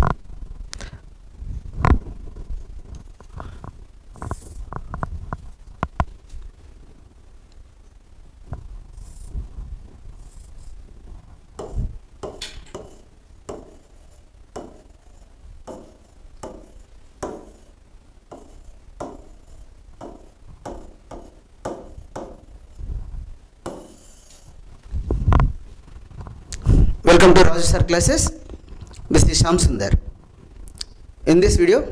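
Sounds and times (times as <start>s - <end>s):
stylus tapping on glass screen: 11.6s - 13.8s, 14.6s - 14.9s, 15.7s - 17.7s, 18.3s - 22.5s.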